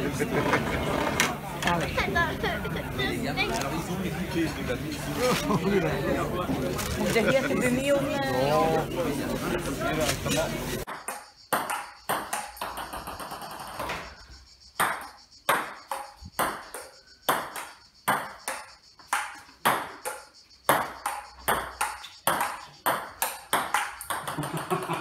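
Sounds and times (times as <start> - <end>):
ping-pong ball clicking: 10.9 - 13.5, 14.8 - 24.9.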